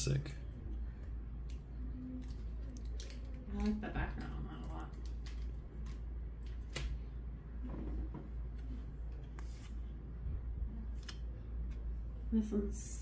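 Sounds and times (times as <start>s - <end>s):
steady low hum: 0.0s - 13.0s
cards rustling and flicking: 8.5s - 10.0s, 10.8s - 11.9s.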